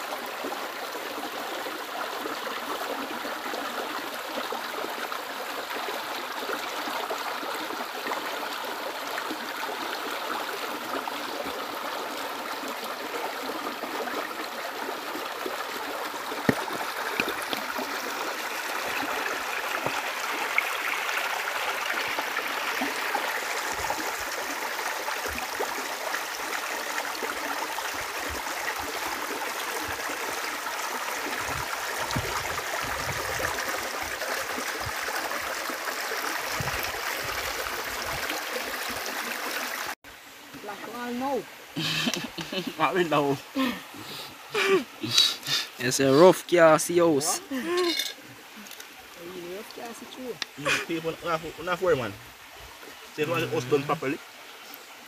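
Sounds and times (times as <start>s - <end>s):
river babbling over rocks: 0.0s - 39.9s.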